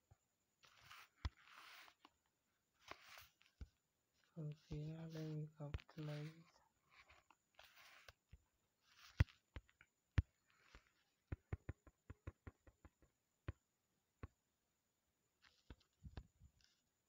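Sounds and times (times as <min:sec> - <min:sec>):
finger tapping phone touchscreen: 0:08.9 - 0:13.6.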